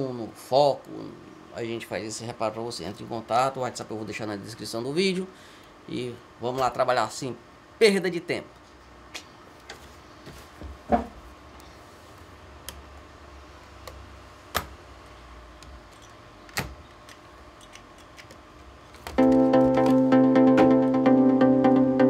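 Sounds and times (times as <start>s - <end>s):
music: 19.2s - 22.0s.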